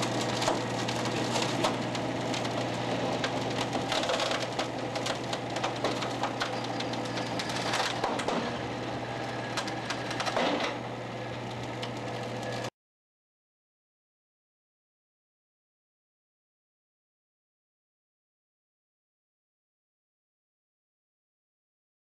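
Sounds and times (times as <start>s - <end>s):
litter creaking and cracking: 0.0s - 12.7s
motor hum: 0.0s - 12.7s.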